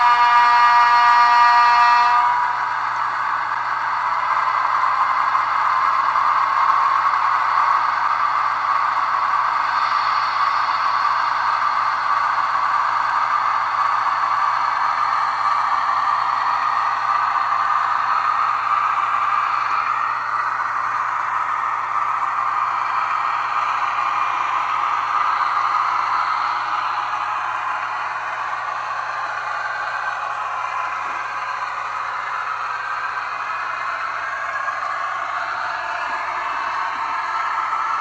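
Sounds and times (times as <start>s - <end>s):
locomotive horn blast: 0.0s - 2.7s
diesel engine running: 2.1s - 38.0s.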